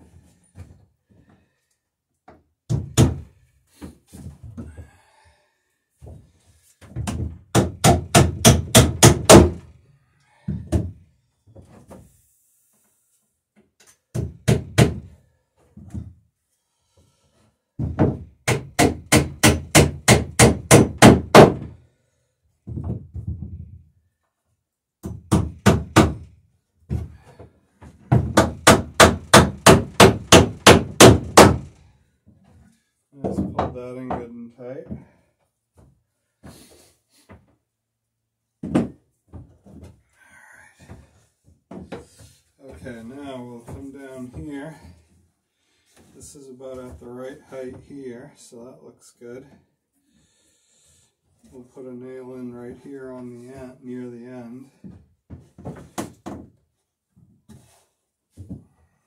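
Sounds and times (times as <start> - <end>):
hammer driving nails into wood: 7.0 - 9.7, 14.1 - 15.1, 17.8 - 21.7, 25.0 - 26.3, 28.1 - 31.8.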